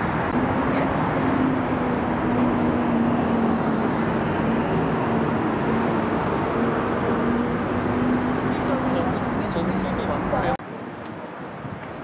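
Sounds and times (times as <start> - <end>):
rumble of road traffic: 0.0 - 12.0.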